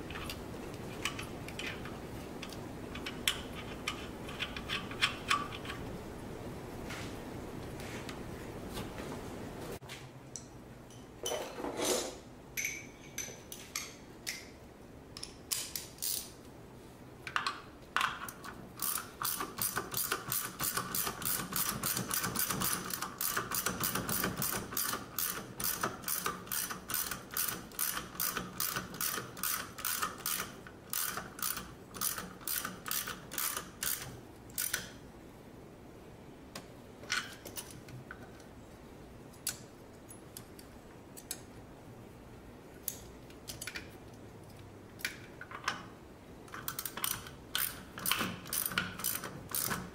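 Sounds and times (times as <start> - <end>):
hand ratchet clicking: 18.4 - 34.9, 46.5 - 49.9.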